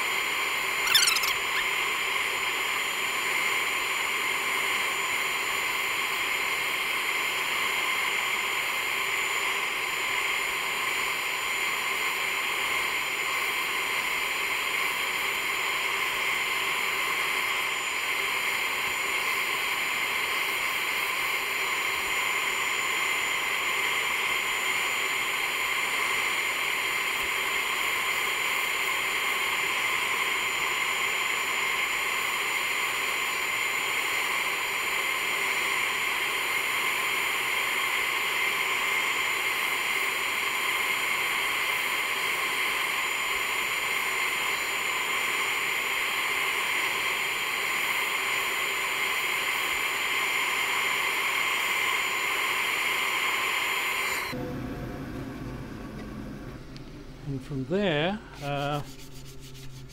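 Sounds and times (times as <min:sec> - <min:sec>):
constant hum: 0:54.2 - 0:59.9
abrasive disc sanding wood: 0:57.8 - 0:59.9.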